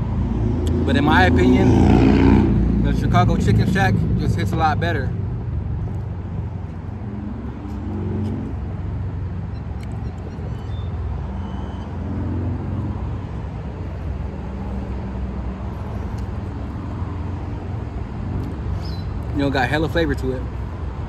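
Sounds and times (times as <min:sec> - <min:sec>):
car engines humming: 0:00.0 - 0:21.0
road traffic rumble: 0:00.0 - 0:21.0.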